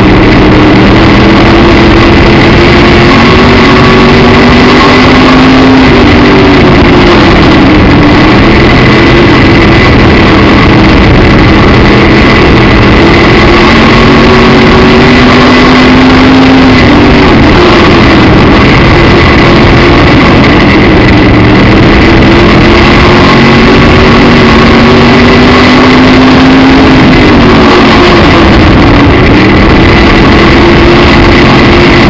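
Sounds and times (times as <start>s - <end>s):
race car engine revving: 0.0s - 32.0s.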